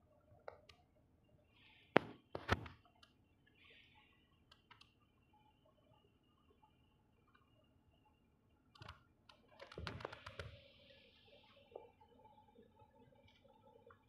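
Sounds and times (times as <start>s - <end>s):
light clicks: 4.5s - 5.0s.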